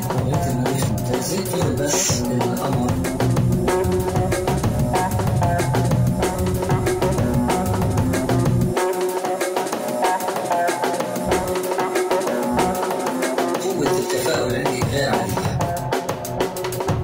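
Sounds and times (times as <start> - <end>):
deep bass: 0.0 - 8.8
dance music with drum beat: 0.0 - 17.0.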